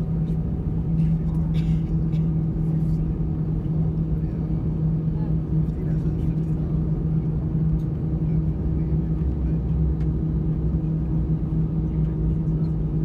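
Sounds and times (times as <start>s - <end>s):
jet engine hum in cabin: 0.0s - 13.0s.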